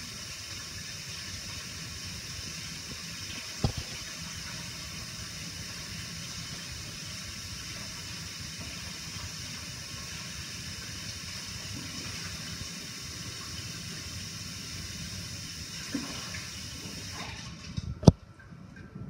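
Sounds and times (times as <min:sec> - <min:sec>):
tap water pouring into bowl: 0:02.8 - 0:05.9.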